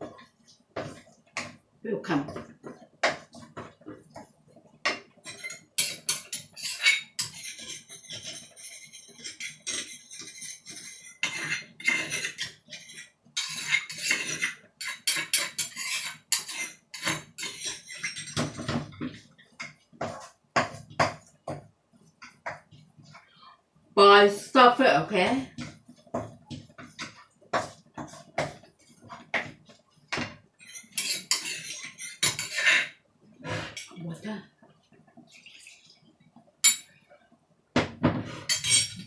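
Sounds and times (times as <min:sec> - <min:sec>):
spatula scraping frying pan: 0:05.1 - 0:21.6, 0:25.1 - 0:34.0, 0:38.1 - 0:39.0.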